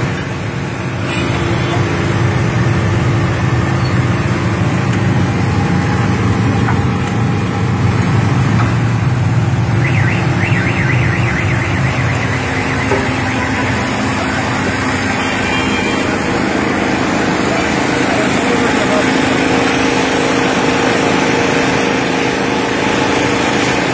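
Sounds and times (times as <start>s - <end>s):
high-pitched warbling tone: 9.8s - 15.8s.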